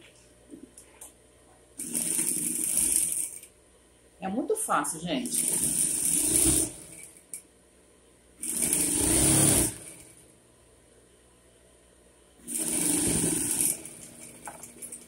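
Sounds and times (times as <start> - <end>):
electric sewing machine stitching: 1.8 - 3.5, 5.2 - 7.2, 8.4 - 10.2, 12.4 - 15.0.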